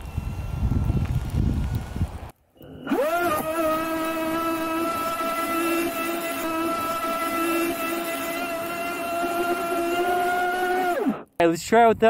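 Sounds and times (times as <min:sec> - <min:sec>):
electric motor high-pitched whine: 0:02.6 - 0:11.2.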